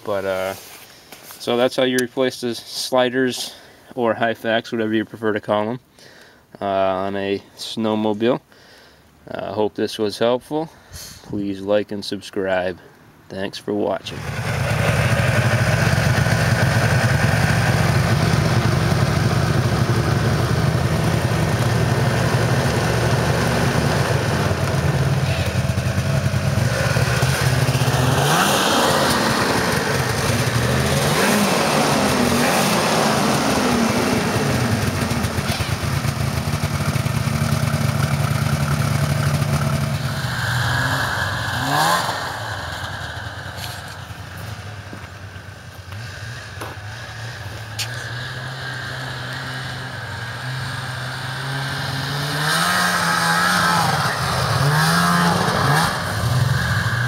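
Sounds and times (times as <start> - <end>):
two-stroke snowmobile engine revving: 14.1 - 57.0.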